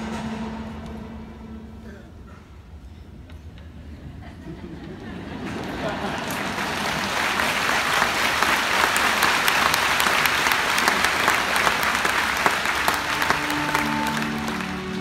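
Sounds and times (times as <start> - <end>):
orchestra playing: 0.0 - 2.3, 9.2 - 15.0
audience applauding: 5.4 - 15.0.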